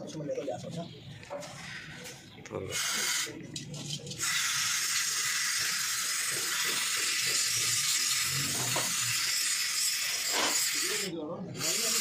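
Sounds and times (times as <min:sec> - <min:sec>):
aerosol can spraying: 0:02.7 - 0:03.3, 0:04.2 - 0:12.0.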